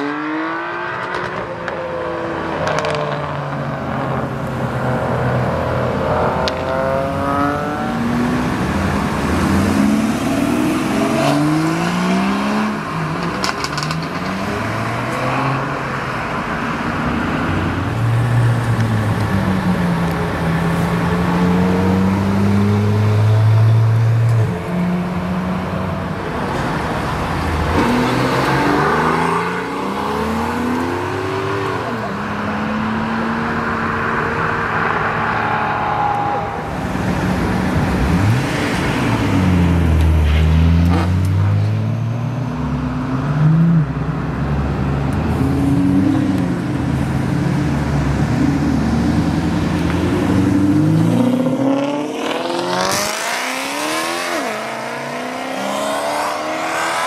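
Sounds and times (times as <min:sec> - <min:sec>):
sports cars accelerating past: 0:45.3 - 0:57.0.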